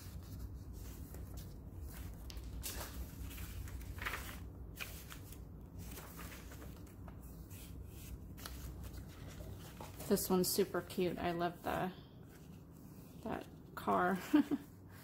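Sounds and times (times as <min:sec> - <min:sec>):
paper pages rustling: 0:00.0 - 0:11.0.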